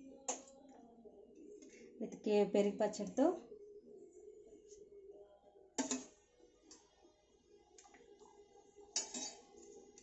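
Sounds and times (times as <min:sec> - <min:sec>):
metal ladle clinking on steel bowl: 0:09.0 - 0:09.5.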